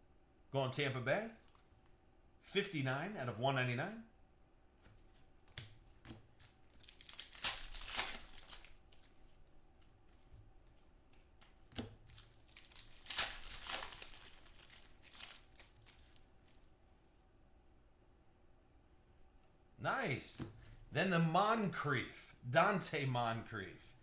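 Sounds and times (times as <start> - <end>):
light taps of card handling: 4.8 - 6.6, 9.8 - 12.3
foil wrapper tearing and crinkling: 6.4 - 9.0, 12.1 - 16.6.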